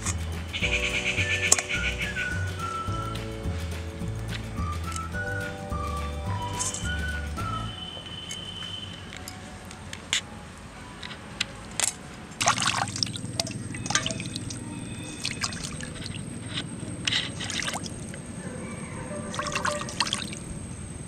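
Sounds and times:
water splashing in a steel bowl: 0:11.8 - 0:18.3, 0:19.3 - 0:20.5.

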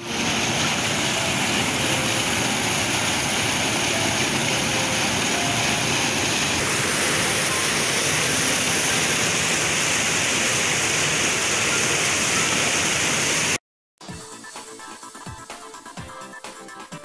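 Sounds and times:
floodwater rushing over boulders: 0:00.0 - 0:13.6.

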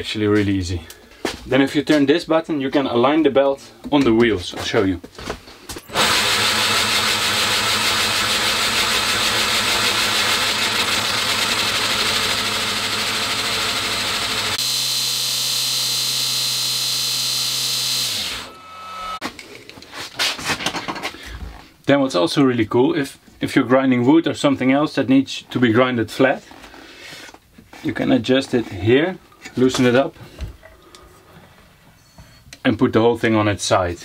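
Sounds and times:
belt grinder running: 0:05.9 - 0:19.2.

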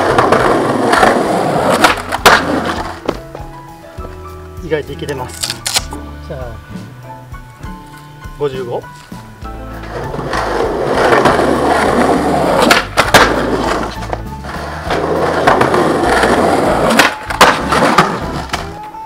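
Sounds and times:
skateboard clacks: 0:00.0 - 0:03.5, 0:09.9 - 0:19.0
skateboard wheels rolling on concrete: 0:00.0 - 0:06.0, 0:06.8 - 0:19.0.

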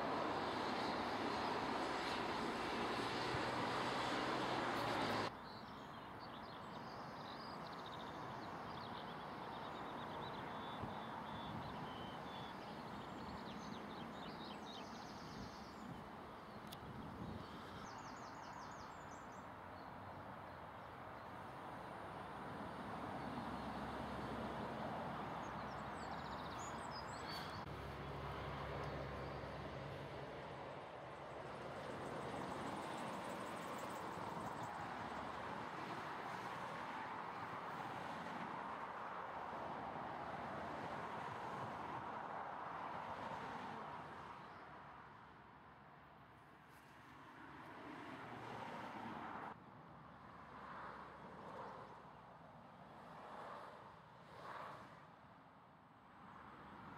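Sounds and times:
road traffic noise: 0:00.0 - 0:56.9
small birds chirping: 0:25.2 - 0:27.7.

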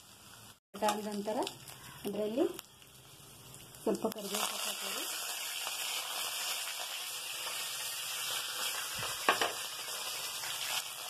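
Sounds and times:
spices sizzling in hot oil: 0:00.0 - 0:11.0.

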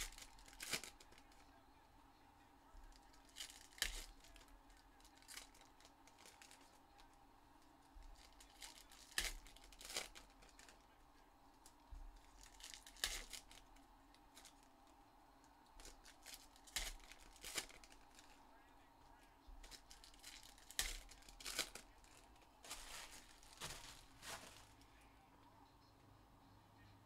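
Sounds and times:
foil wrappers tearing and crinkling: 0:00.0 - 0:01.5, 0:02.9 - 0:06.8, 0:08.0 - 0:10.9, 0:11.6 - 0:14.7, 0:15.8 - 0:18.4, 0:19.6 - 0:24.8.

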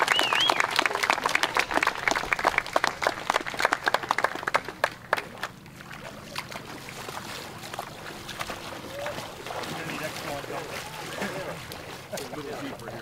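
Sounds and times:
crowd clapping: 0:00.0 - 0:06.7, 0:08.8 - 0:12.9.

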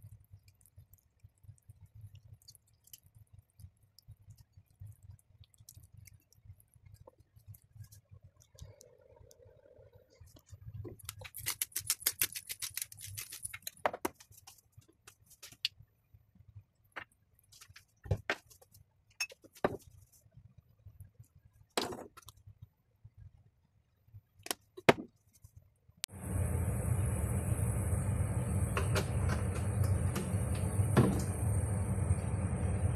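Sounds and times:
pepper grinder clicking: 0:11.0 - 0:13.8.

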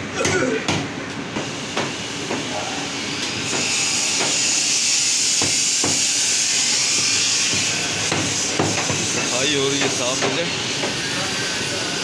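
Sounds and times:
cleaver chopping on wooden block: 0:05.4 - 0:06.1, 0:07.5 - 0:09.2.

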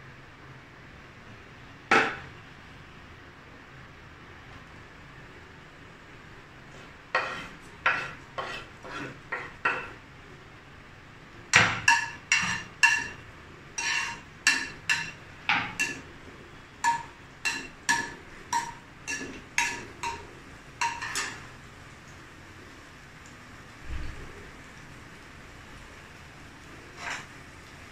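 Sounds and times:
spoon clinking in metal frying pan: 0:11.6 - 0:13.2, 0:13.8 - 0:16.1, 0:16.8 - 0:21.4.

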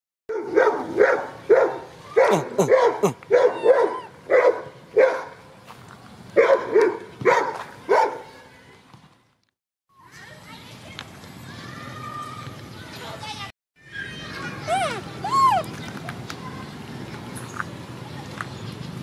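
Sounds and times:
dog barking: 0:00.3 - 0:05.4, 0:06.4 - 0:08.3.

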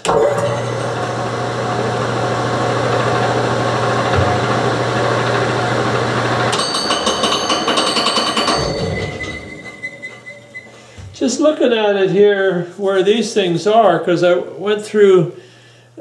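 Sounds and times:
wood lathe motor hum: 0:00.0 - 0:10.8
high-pitched whining tones: 0:07.2 - 0:10.9.

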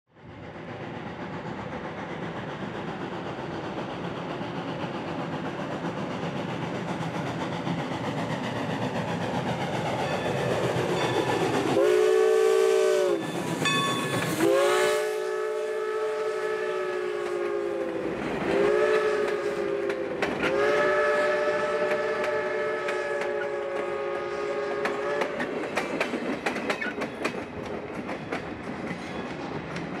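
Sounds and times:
steam locomotive puffing: 0:00.2 - 0:30.0
steam whistle chord: 0:11.7 - 0:18.0, 0:18.6 - 0:25.4
wheels clicking over rail joints: 0:17.2 - 0:20.8, 0:21.5 - 0:30.0.

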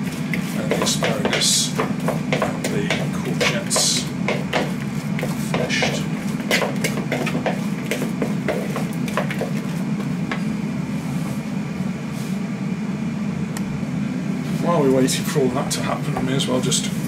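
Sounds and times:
wooden spoon stirring in a bowl: 0:00.0 - 0:10.5
steady low hum: 0:00.0 - 0:17.0.

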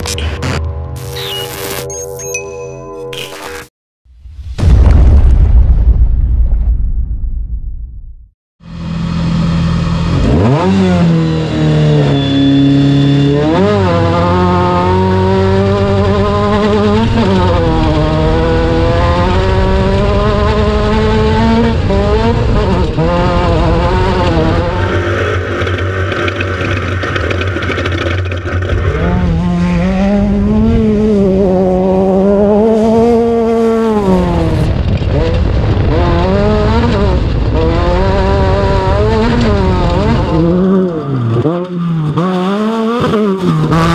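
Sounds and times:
race car engine revving: 0:08.7 - 0:28.0, 0:28.6 - 0:43.9.

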